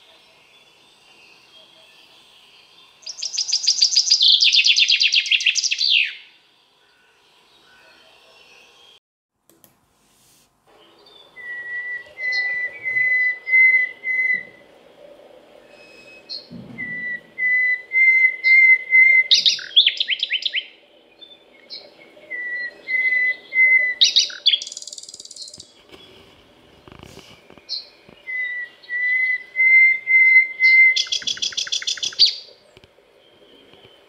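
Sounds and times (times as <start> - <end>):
nightingale singing: 0.0 - 9.0, 10.7 - 26.2, 26.8 - 34.0.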